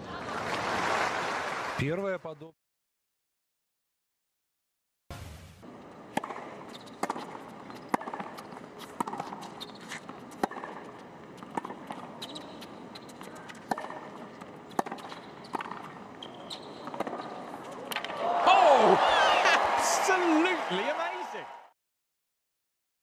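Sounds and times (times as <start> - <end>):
tennis ball bouncing: 5.9 - 18.2
racket hitting tennis ball: 6.0 - 18.2.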